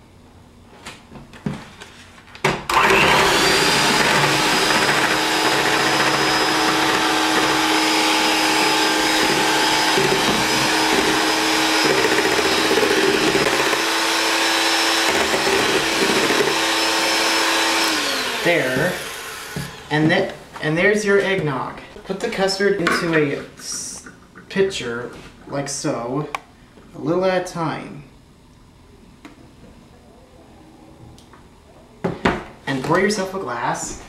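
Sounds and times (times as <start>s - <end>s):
electric hand mixer whining: 2.7s - 19.9s.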